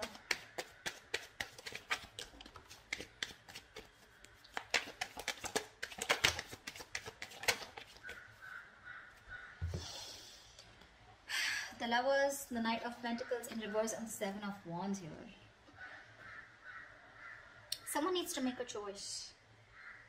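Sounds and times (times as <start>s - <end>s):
cards being shuffled: 0.0s - 8.2s.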